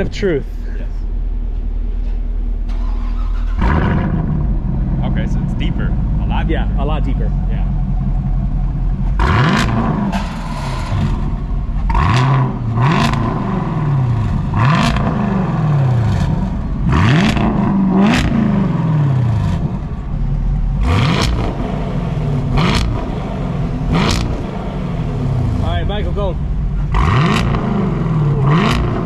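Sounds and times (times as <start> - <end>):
car engine revving from idle: 2.7 - 29.0.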